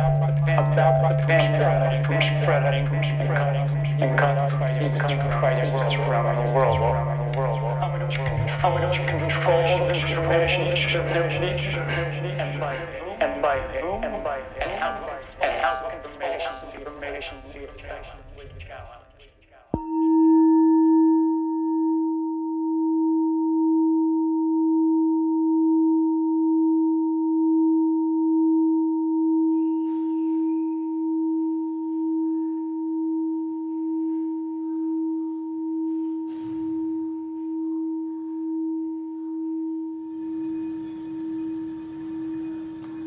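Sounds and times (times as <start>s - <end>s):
high overtone: 0.0s - 18.3s, 29.6s - 43.0s
singing bowl ringing: 19.8s - 24.7s, 29.6s - 43.0s.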